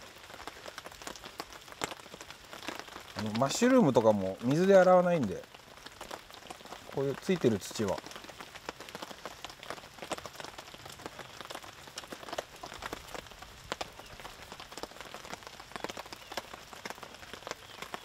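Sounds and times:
rain falling: 0.0 - 18.0
raindrops tapping surfaces: 0.0 - 18.0.

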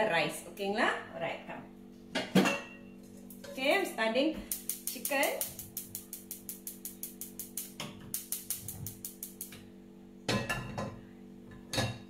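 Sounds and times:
steady low hum: 0.0 - 12.0
gas igniter clicking rapidly: 4.5 - 9.6.

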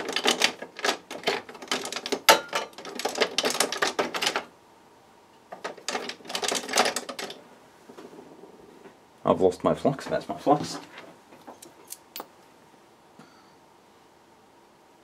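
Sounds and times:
small hard objects clattering: 0.0 - 4.5.

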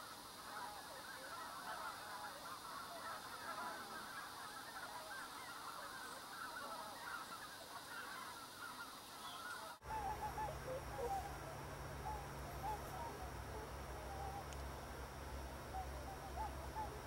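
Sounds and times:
wild geese honking: 0.0 - 17.0
steady low rumble: 9.8 - 17.0.

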